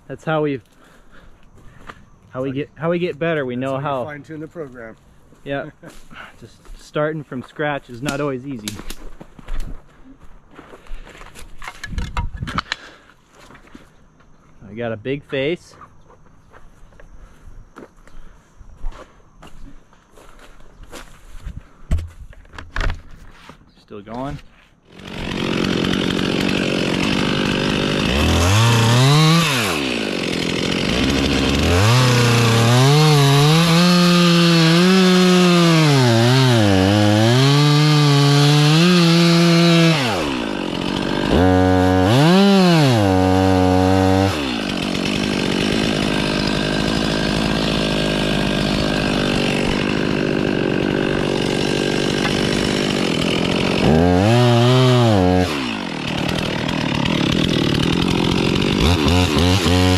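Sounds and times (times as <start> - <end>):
chainsaw cutting wood: 8.0 - 9.0, 24.9 - 59.9.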